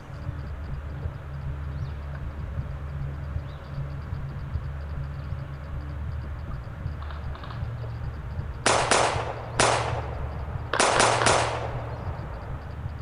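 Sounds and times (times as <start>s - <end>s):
airsoft gun shots: 8.6s - 12.2s.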